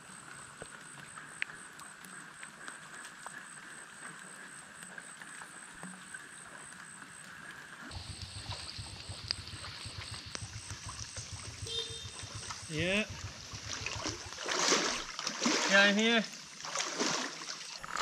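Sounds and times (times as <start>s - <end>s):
small water drips: 0.0s - 17.8s
water noise: 0.0s - 18.0s
low fluttering rumble: 7.9s - 15.1s.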